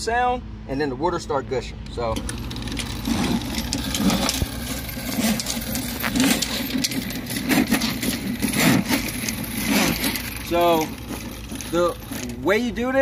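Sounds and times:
drain snake cable churning and clicking: 2.2 - 12.6.

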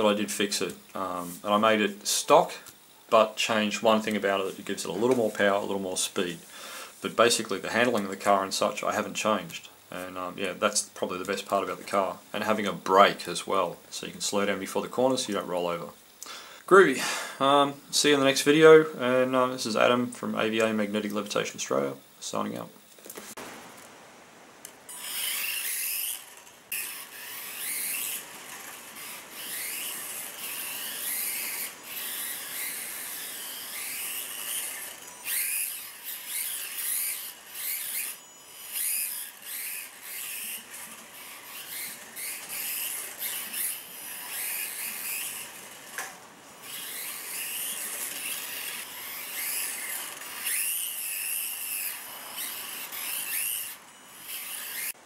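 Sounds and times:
rc car motor whining: 24.9 - 55.0.

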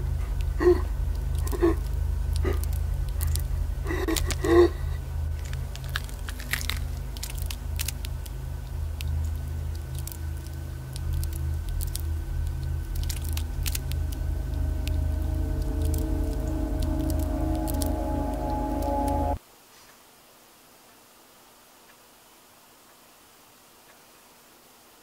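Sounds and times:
low droning hum: 0.0 - 19.4
small clicks and crackles: 0.2 - 20.0.

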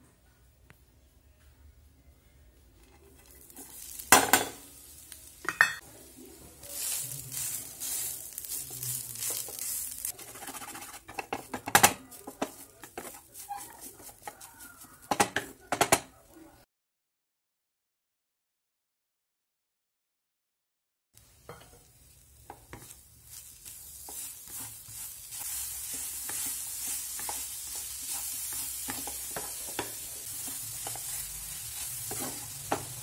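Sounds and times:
spatula scraping coconut in pan: 6.6 - 15.6, 22.5 - 33.0.

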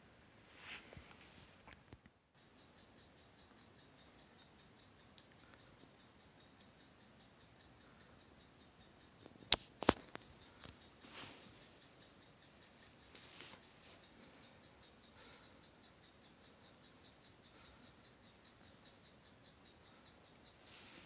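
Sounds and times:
faint room hiss: 0.0 - 21.0
soft shuffle: 0.4 - 1.7, 11.0 - 11.8, 20.6 - 21.0
sharp clicks: 2.4 - 21.0.

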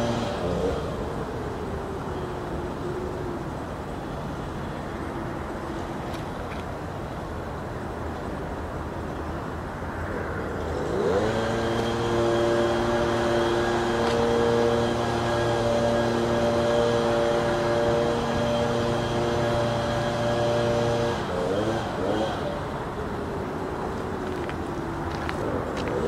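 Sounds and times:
motor hum rising in pitch: 10.8 - 22.6.

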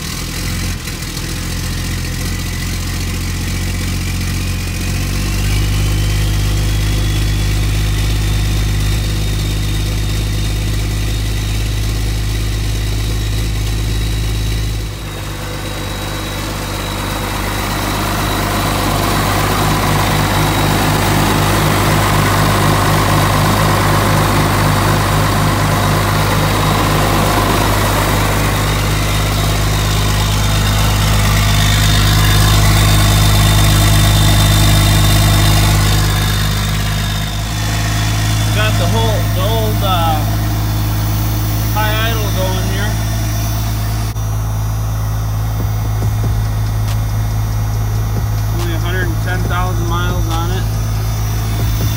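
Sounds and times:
diesel engine idling: 0.0 - 51.9
high thin whine: 13.0 - 51.9.

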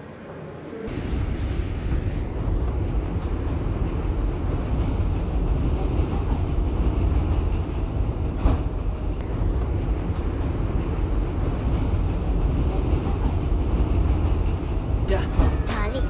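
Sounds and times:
subway train rumbling: 0.0 - 16.0.

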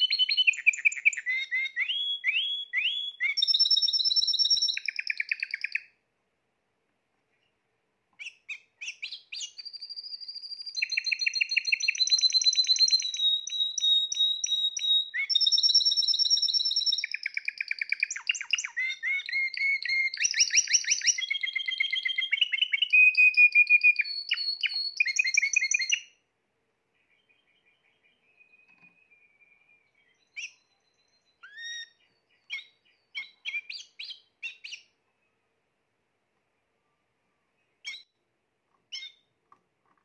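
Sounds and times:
canary singing: 0.0 - 6.0, 8.2 - 26.2, 27.0 - 35.0, 37.8 - 39.4.

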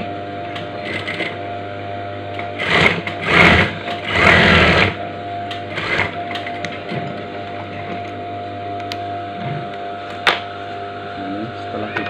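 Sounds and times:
sewing machine stitching: 2.5 - 5.0.

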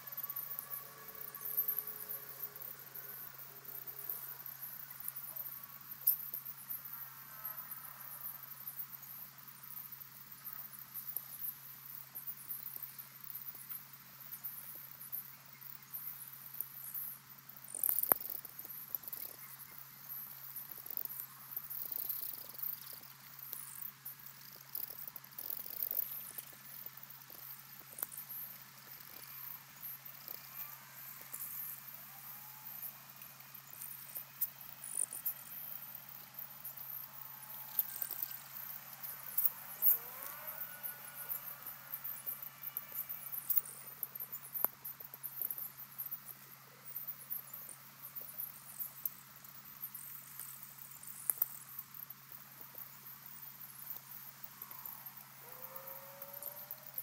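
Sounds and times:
high-pitched ticking and chirping: 0.0 - 57.0
low electrical hum: 0.0 - 57.0
soft hiss: 0.0 - 57.0.

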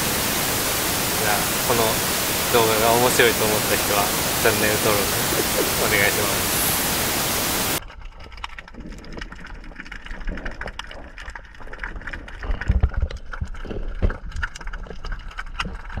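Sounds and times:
low rumble of moving water: 0.0 - 16.0
underwater crackling clicks: 8.0 - 16.0.

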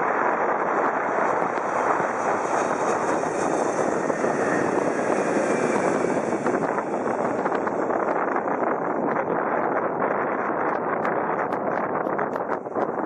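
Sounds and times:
jet plane passing overhead: 0.0 - 10.4.

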